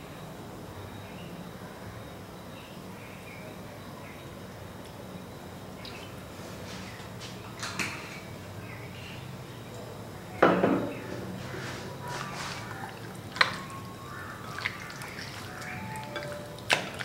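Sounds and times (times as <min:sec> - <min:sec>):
hands squelching raw meat: 0:11.7 - 0:17.0.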